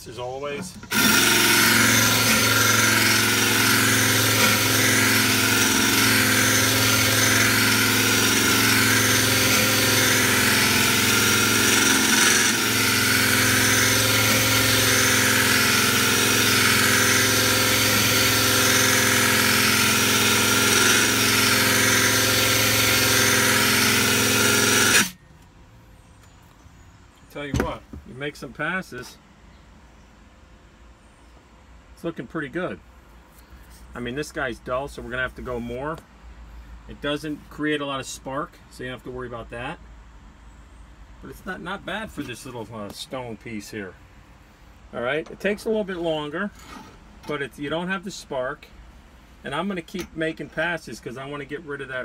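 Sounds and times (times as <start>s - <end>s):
power drill motor hum: 0.8s - 25.2s.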